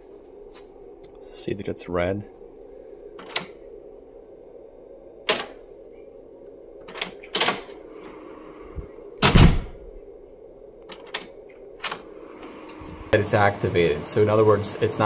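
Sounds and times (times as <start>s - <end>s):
door handle clicks: 3.2s - 3.5s, 6.9s - 7.7s
door latch thunk: 9.2s - 9.7s.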